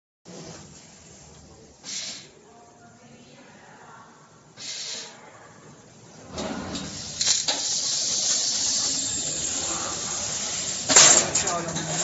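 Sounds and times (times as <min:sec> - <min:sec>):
laser cutter assist gas hissing: 0:06.6 - 0:12.0.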